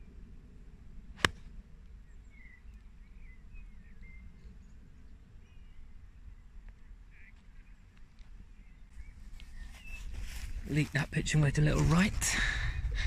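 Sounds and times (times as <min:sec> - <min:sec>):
golf club striking ball: 0:01.2 - 0:01.5
faint bird chirps: 0:02.0 - 0:10.6.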